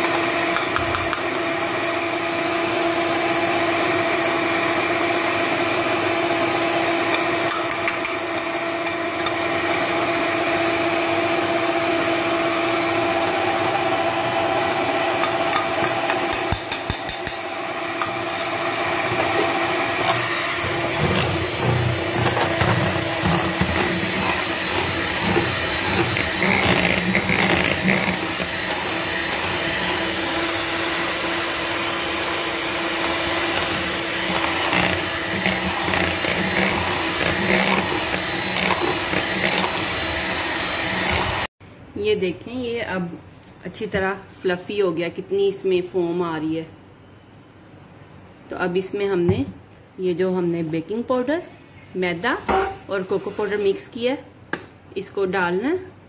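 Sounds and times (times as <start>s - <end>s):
stand mixer whipping batter: 0.0s - 41.5s.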